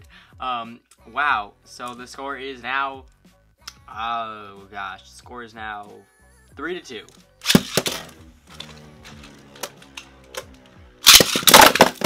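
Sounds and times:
spinning top launch clack: 0:07.4 - 0:12.0
spinning tops clattering: 0:07.4 - 0:12.0.

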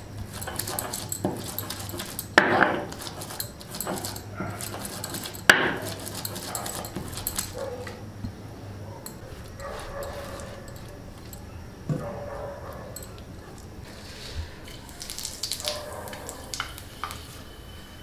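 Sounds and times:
stone grinding on stone: 0:00.0 - 0:07.6, 0:09.0 - 0:11.4.

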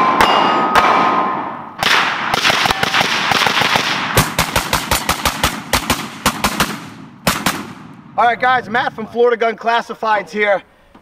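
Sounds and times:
steel targets ringing: 0:00.0 - 0:01.8
gunfire in rapid bursts: 0:00.0 - 0:08.2.

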